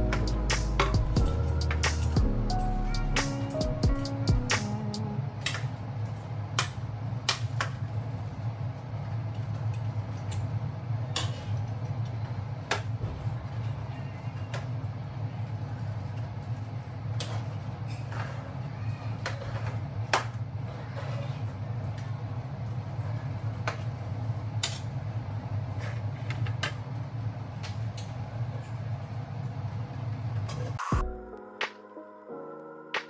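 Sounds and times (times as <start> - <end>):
steady low hum: 0.0 - 18.1.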